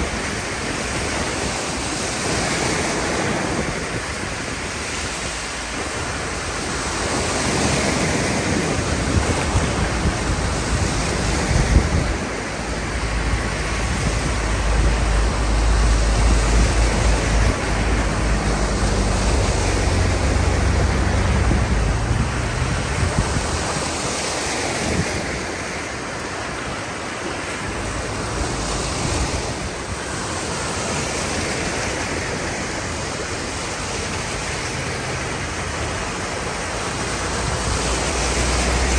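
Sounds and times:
tyres splashing through floodwater: 0.0 - 38.9
deep vehicle rumble: 8.9 - 23.8.

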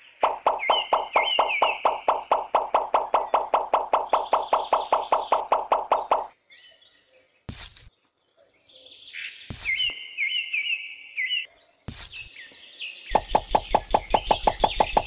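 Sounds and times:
birds chirping: 0.0 - 15.0
brief hissing bursts: 7.5 - 7.9, 9.5 - 9.9.

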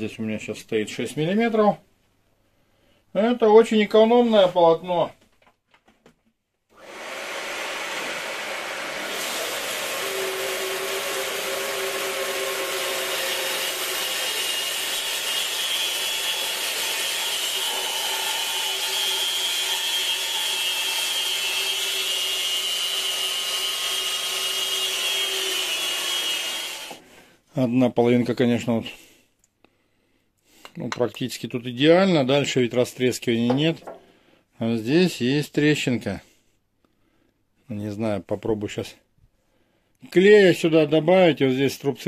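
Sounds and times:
bandsaw cutting wood: 6.8 - 27.1.

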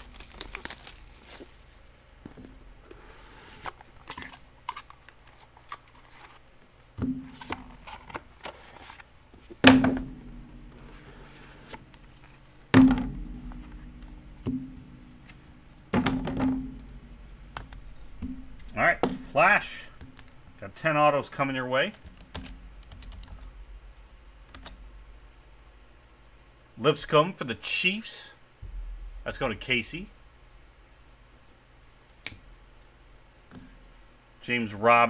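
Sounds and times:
trading cards rustling: 0.0 - 2.4
dull thuds with low ring: 9.6 - 19.4, 28.6 - 31.0.

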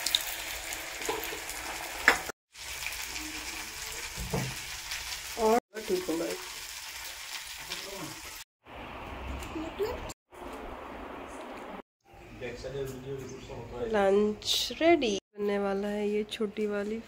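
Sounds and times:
food sizzling in a pan: 0.0 - 8.5.

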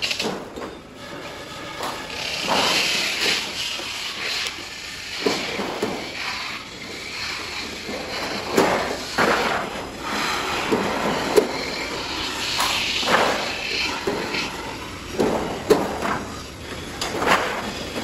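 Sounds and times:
hand shears cutting steel sheet: 1.8 - 16.4.

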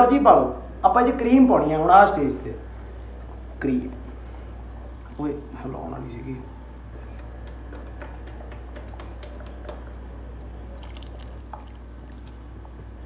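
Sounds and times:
steady low hum: 0.0 - 13.0
cream pouring into pot: 10.6 - 12.5
cream sloshing in carton: 10.8 - 12.6.

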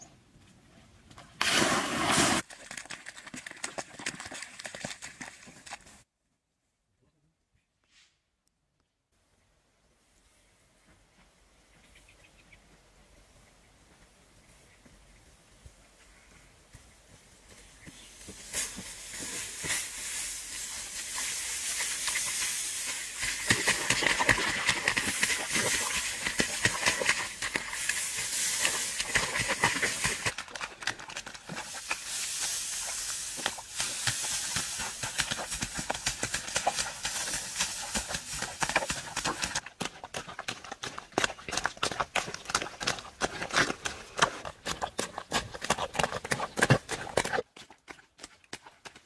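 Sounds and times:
footsteps treading in mud: 16.7 - 49.0.

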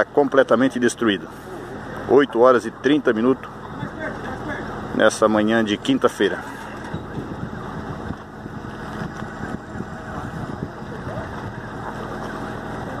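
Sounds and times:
vehicle engine idling: 0.0 - 13.0
faint voices: 6.0 - 13.0.

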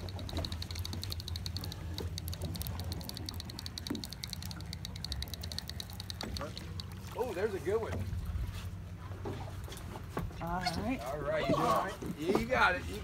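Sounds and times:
fishing reel clicking: 0.0 - 7.2.

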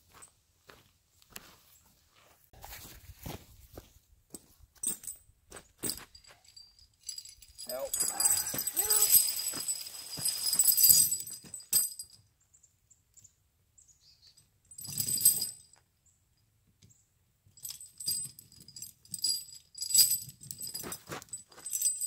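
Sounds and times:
steel tire chains clinking: 5.8 - 12.2, 14.7 - 15.7, 17.6 - 22.0.

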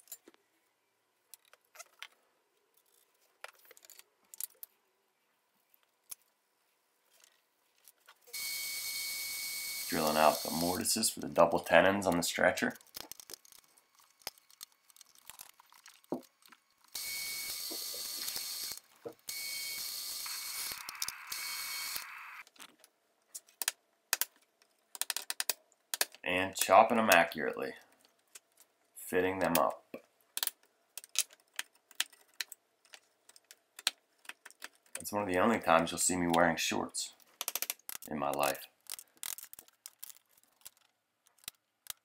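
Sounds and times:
drill press whirring: 16.9 - 22.4.

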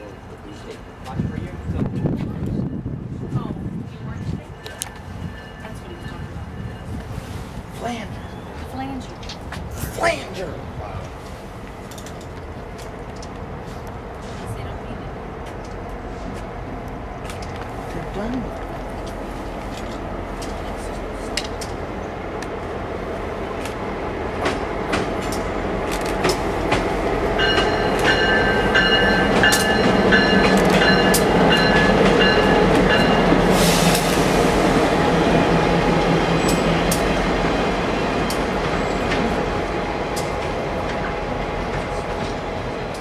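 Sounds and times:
diesel locomotive engine rumble: 0.0 - 43.0
locomotive bell ringing: 4.6 - 6.9, 27.4 - 33.4
wheels clicking over rail joints: 11.1 - 14.0
air hiss: 33.5 - 34.7.

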